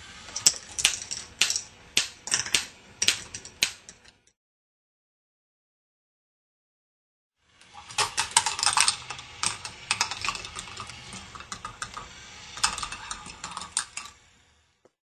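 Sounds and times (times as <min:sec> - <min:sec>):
plastic balls clattering on track: 0:00.3 - 0:04.1, 0:07.6 - 0:14.2.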